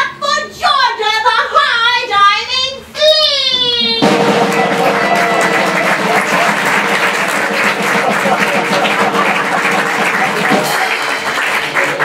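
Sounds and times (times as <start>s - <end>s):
audience applauding: 4.0s - 12.0s
voices cheering: 4.0s - 12.0s.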